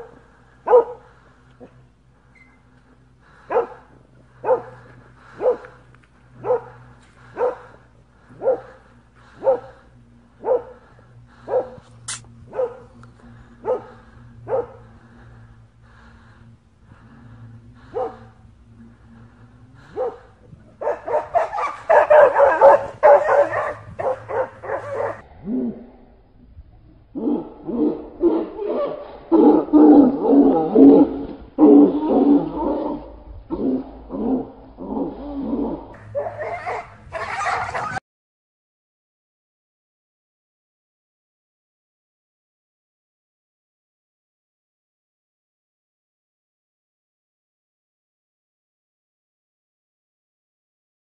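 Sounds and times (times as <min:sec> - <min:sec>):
dog barking: 0:00.0 - 0:01.8, 0:03.4 - 0:05.8, 0:06.4 - 0:07.8, 0:08.4 - 0:08.8, 0:09.4 - 0:09.8, 0:10.4 - 0:10.8, 0:11.4 - 0:11.9, 0:12.5 - 0:12.9, 0:13.6 - 0:14.8, 0:17.9 - 0:18.3, 0:19.9 - 0:25.2, 0:27.7 - 0:29.0, 0:36.0 - 0:38.0.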